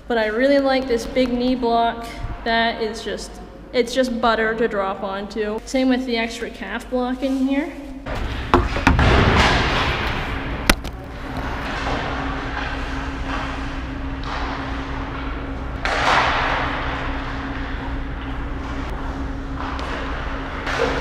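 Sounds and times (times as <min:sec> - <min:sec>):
steady hum: 0:07.9 - 0:21.0.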